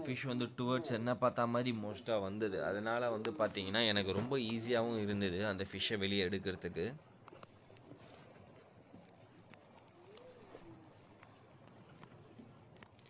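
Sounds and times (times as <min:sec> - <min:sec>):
faint ticks: 0:07.2 - 0:13.0.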